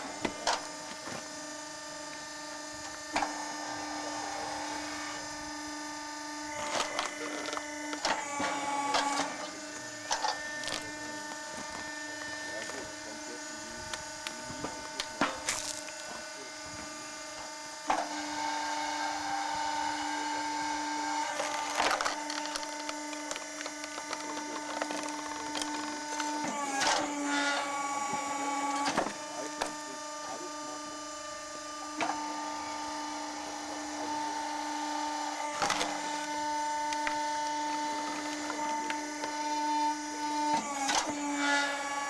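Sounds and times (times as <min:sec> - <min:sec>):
log splitter motor humming: 0:00.0 - 0:42.0
wood cracking: 0:21.4 - 0:26.4.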